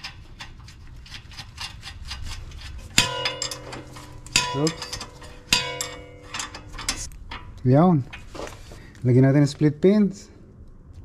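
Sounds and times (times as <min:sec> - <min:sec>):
metal tools rattling: 0:01.1 - 0:08.3
ringing metal clanks: 0:02.9 - 0:07.6.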